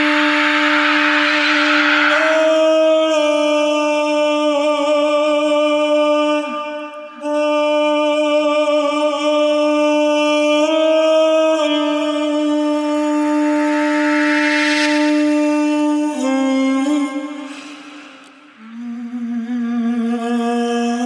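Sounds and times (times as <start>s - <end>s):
droning music note: 0.0s - 4.1s.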